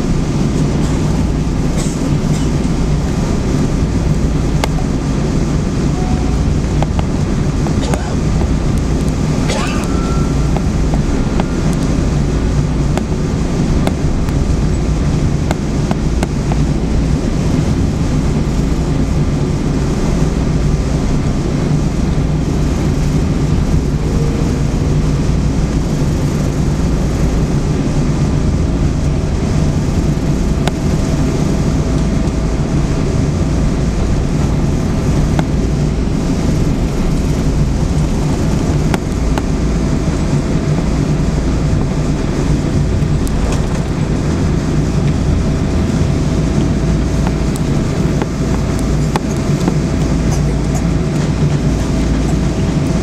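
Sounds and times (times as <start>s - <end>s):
airplane cabin rumble: 0.0s - 53.0s
faint thin whine: 9.4s - 13.0s.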